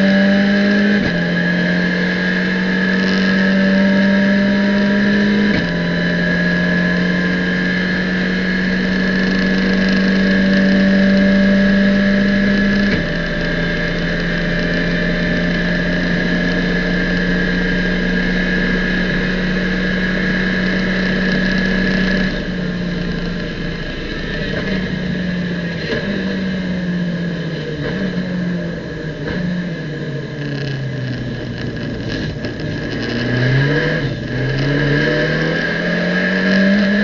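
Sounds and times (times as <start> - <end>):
racing car engine at full throttle: 0.0 - 37.0.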